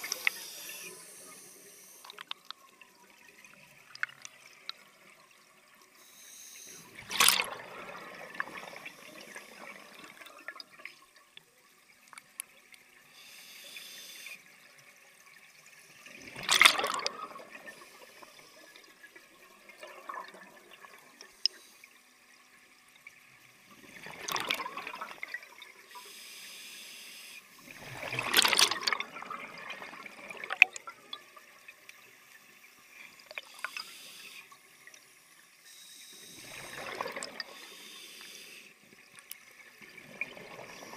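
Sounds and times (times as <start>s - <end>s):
exhaled bubbles rushing underwater: 6.9s - 10.9s, 16.1s - 21.3s, 23.8s - 25.8s, 27.7s - 31.6s, 36.4s - 37.6s, 39.8s - 40.9s.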